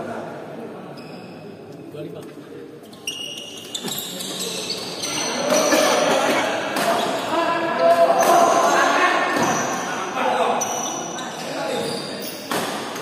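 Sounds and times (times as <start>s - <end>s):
clamour of voices in a hall: 0.0s - 13.0s.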